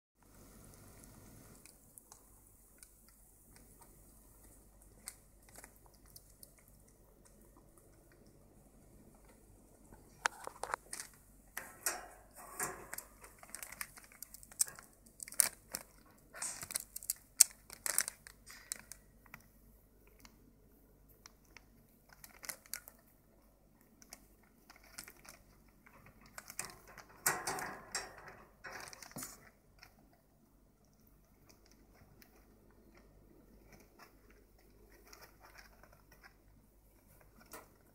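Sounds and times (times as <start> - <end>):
newspaper crinkling and crunching: 12.4 - 19.1, 22.0 - 23.1, 24.7 - 25.6.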